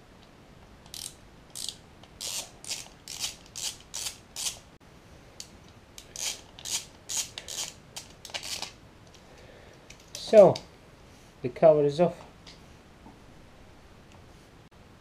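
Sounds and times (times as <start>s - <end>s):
socket ratchet clicking: 0.9s - 4.6s, 6.0s - 8.7s.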